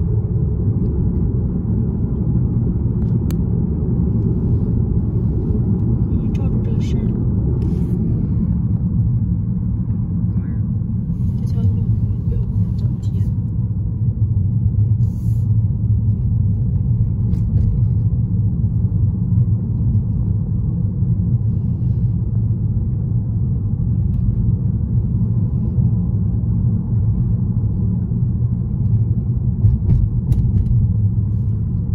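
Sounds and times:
car driving rumble: 0:00.0 - 0:31.9.

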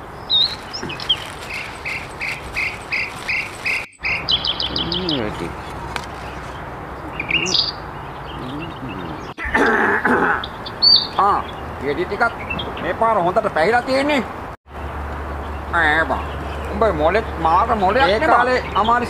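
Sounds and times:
rattle of fast chirps: 0:00.3 - 0:05.6.

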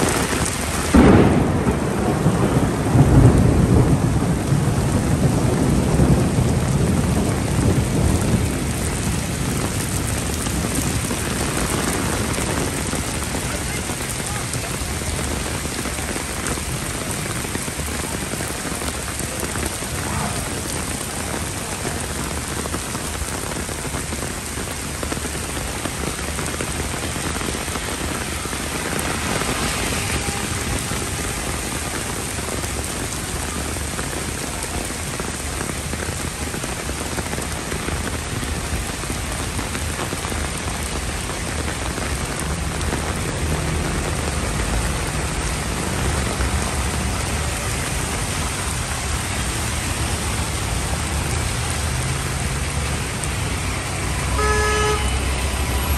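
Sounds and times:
car passing through water: 0:00.0 - 0:23.4, 0:25.3 - 0:34.4
heavy rain on paving: 0:00.0 - 0:55.9.

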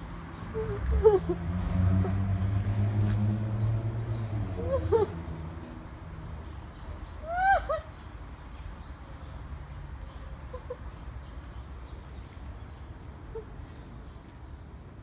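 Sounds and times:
faint bird calls: 0:10.0 - 0:12.2, 0:13.0 - 0:14.3.

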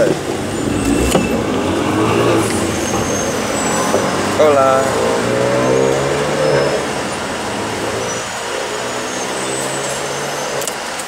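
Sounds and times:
vehicle engine running steadily: 0:00.0 - 0:05.5.

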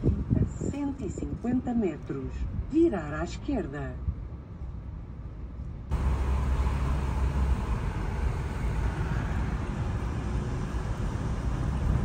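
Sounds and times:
car driving road noise: 0:04.0 - 0:12.0.

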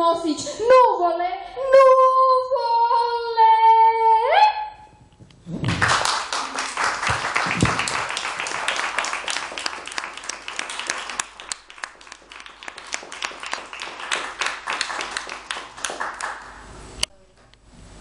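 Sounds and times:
audience applauding: 0:05.6 - 0:16.7.

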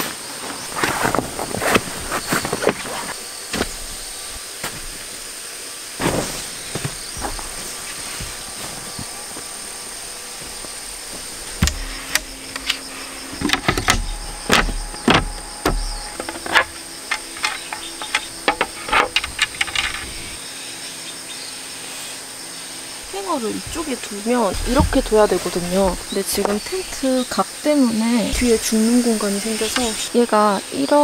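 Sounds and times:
wooden frames knocking together: 0:06.7 - 0:20.4, 0:23.1 - 0:27.1.

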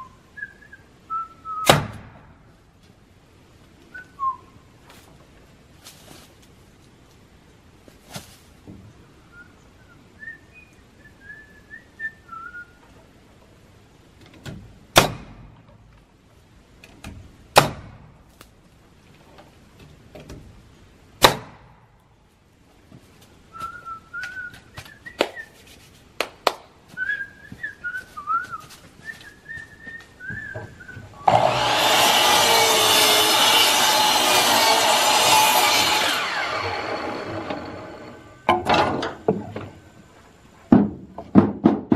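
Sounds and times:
whistling: 0:00.0 - 0:01.8, 0:03.9 - 0:04.6, 0:09.3 - 0:12.8, 0:23.5 - 0:25.7, 0:26.9 - 0:31.4
pneumatic nail gun shots: 0:01.6 - 0:02.3, 0:15.0 - 0:15.5, 0:17.6 - 0:18.1, 0:21.2 - 0:21.7, 0:31.2 - 0:37.6
miter saw running: 0:31.2 - 0:38.4.

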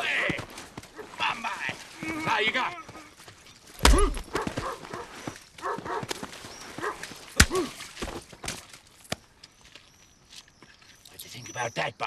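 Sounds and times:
punch impacts: 0:03.8 - 0:04.2.

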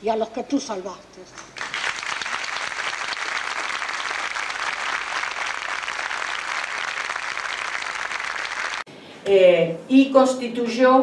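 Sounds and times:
crowd applauding: 0:01.6 - 0:08.9.

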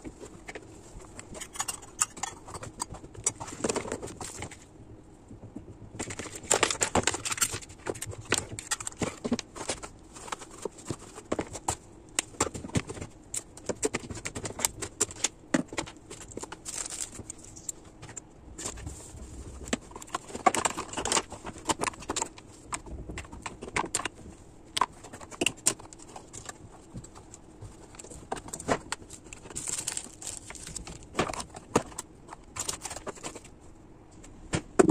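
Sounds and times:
rustling: 0:18.6 - 0:33.7.

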